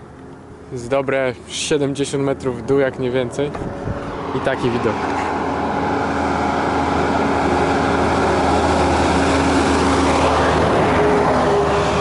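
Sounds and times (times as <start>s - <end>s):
lorry engine drone: 0.0s - 12.0s
road noise: 0.0s - 12.0s
wind rushing: 3.6s - 12.0s.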